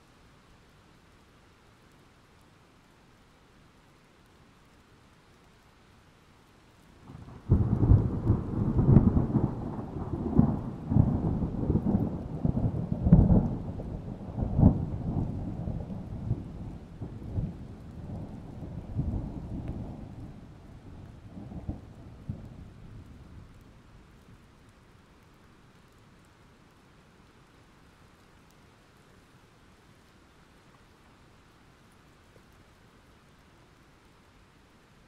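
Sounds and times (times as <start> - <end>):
rain falling: 0.0 - 35.0
thunder rumbling: 7.1 - 23.7.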